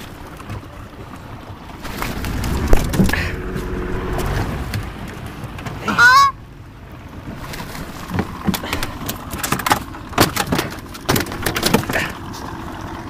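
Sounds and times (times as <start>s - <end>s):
knocks and scuffles in boat: 0.0s - 3.2s, 6.9s - 12.6s
goose honking: 5.8s - 6.4s.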